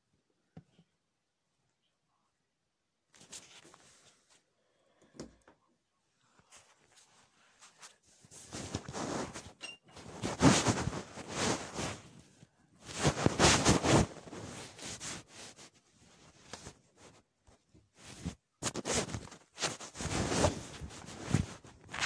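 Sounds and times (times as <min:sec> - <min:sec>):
rustling and scraping: 0:03.2 - 0:04.5, 0:06.3 - 0:22.0.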